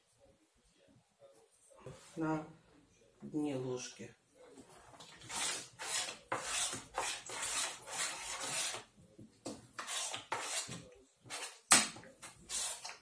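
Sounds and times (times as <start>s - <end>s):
spoon scraping in a bowl: 5.0s - 8.9s, 9.8s - 11.6s, 12.2s - 13.0s.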